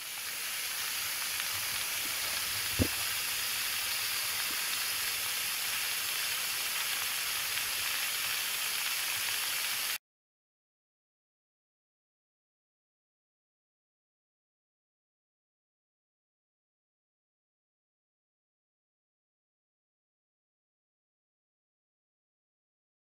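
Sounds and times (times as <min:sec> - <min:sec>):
water spraying from pipe leaks: 0:00.0 - 0:10.0.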